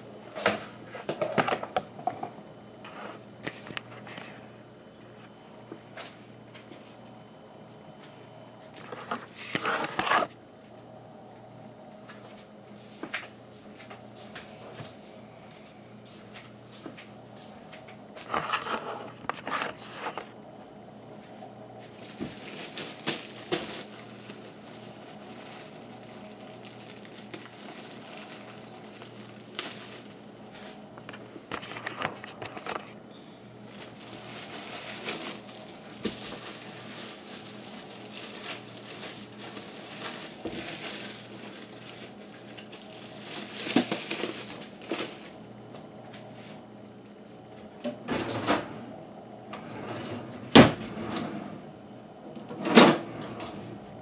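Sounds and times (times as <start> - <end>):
plastic packaging crinkling: 21.9 - 33.0, 33.6 - 45.5.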